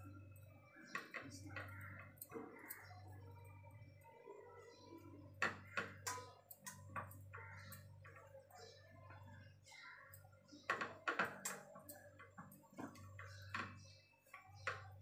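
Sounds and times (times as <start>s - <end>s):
sharp clicks and knocks: 10.6s - 15.0s.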